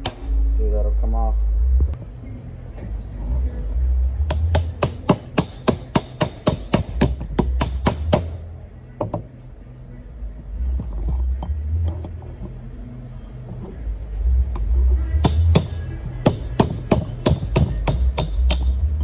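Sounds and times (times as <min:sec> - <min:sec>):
hammer tapping on metal punch: 0:04.3 - 0:08.4, 0:15.2 - 0:18.8.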